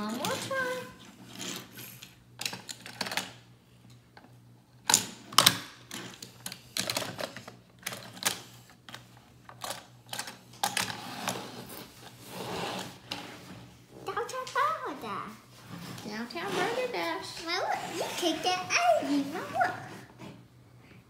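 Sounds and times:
plastic toy clicks and clacks: 4.9 - 11.0.

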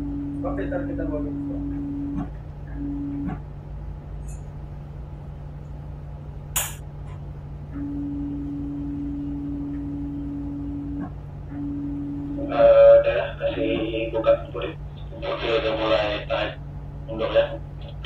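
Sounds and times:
steady hum-like tone: 0.0 - 18.0
tugboat engine droning: 0.0 - 18.0
sharp click: 6.6 - 7.2.

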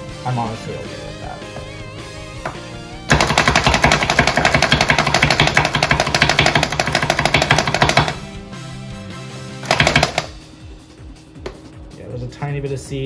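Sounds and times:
plunger food chopper clacking: 3.1 - 8.2, 9.7 - 10.3.

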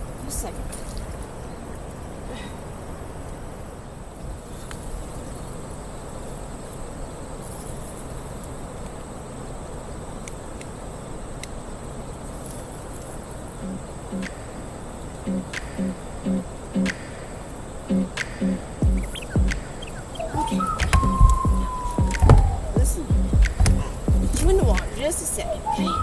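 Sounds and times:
high-pitched whine: 13.6 - 26.0
faint clicks: 18.1 - 25.0
wind on the microphone: 18.8 - 26.0.

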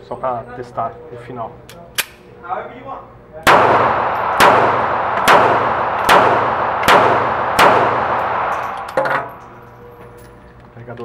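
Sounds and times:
pistol shots echoing indoors: 3.4 - 10.2.

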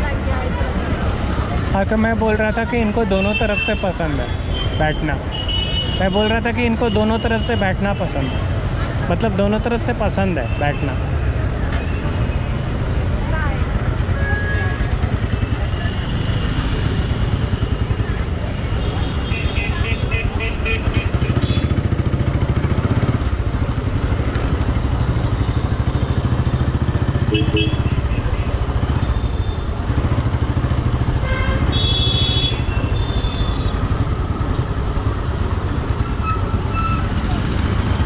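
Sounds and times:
motorcycle engine running: 11.2 - 18.9, 20.7 - 38.0
vehicle horn blasts: 27.3 - 28.0, 31.2 - 33.8.

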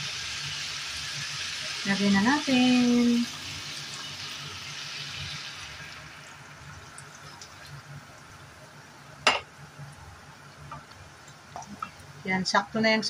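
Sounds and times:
soda poured into hot pan: 0.0 - 7.9
food bubbling in pan: 0.0 - 12.3.

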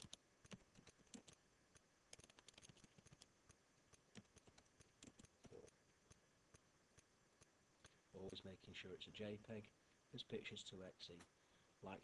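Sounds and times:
keyboard typing clicks: 0.0 - 1.4, 2.1 - 3.3, 3.9 - 5.7.

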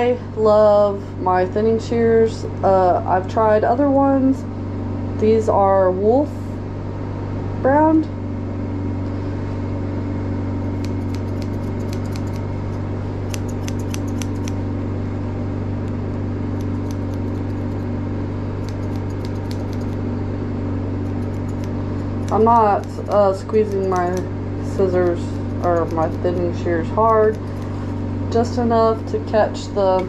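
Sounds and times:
steady machine hum: 0.0 - 30.0
shears snipping hair: 10.6 - 14.7, 15.9 - 17.9, 18.6 - 20.0, 21.0 - 29.2.

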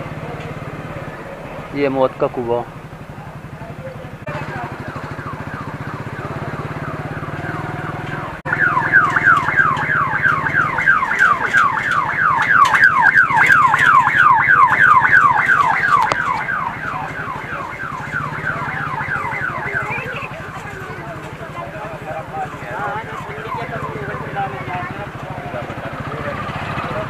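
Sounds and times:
motorbike engine hum: 0.0 - 27.0
electronic falling chirp alarm: 4.3 - 20.5.

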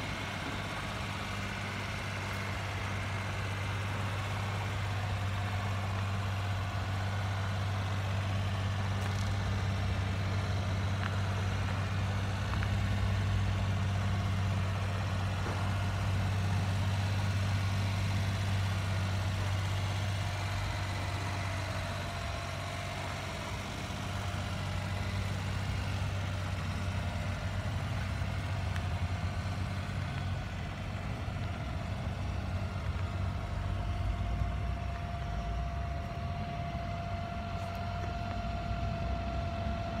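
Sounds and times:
small truck engine idling: 0.0 - 40.0.

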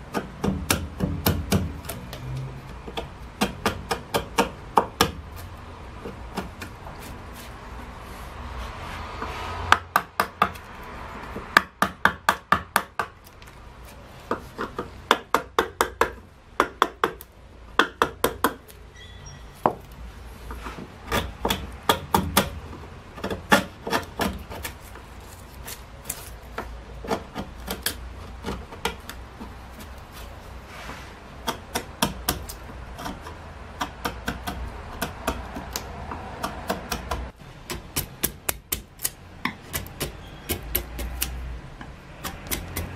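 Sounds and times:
chisel clicking on wood: 0.0 - 5.2, 9.7 - 13.5, 14.3 - 18.8, 21.0 - 25.0, 26.0 - 30.0, 31.4 - 42.9.

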